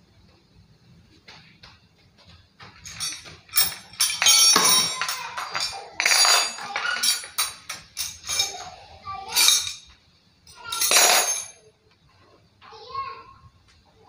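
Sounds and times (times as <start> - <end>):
metal parts clinking together: 2.8 - 9.9, 10.5 - 11.6.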